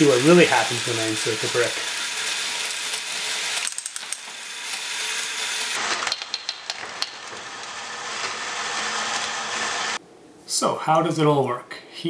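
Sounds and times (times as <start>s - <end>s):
toy balls rattling around track: 0.0s - 7.3s
balls clicking and clattering: 3.0s - 4.4s, 5.9s - 7.4s.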